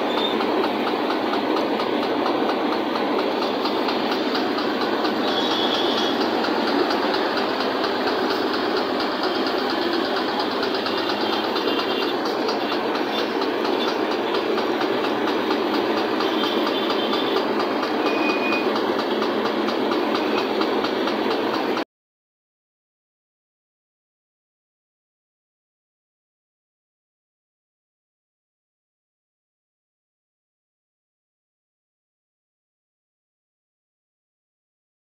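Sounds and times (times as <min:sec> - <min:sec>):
metal lathe running: 0:00.0 - 0:21.8.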